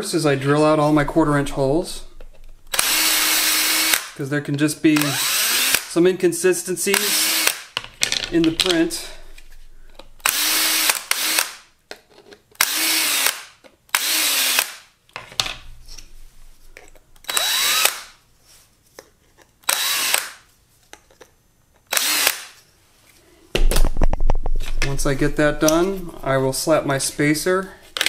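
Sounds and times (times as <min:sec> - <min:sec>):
power drill bursts: 0:02.7 - 0:04.1, 0:05.0 - 0:05.9, 0:06.9 - 0:07.7, 0:10.2 - 0:11.6, 0:12.6 - 0:14.8, 0:17.2 - 0:18.1, 0:19.7 - 0:20.4, 0:21.9 - 0:22.6.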